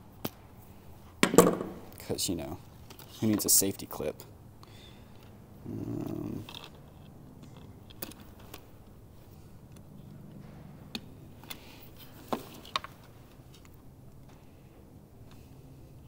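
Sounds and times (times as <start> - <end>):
quiet handling noise: 1.1 - 4.1.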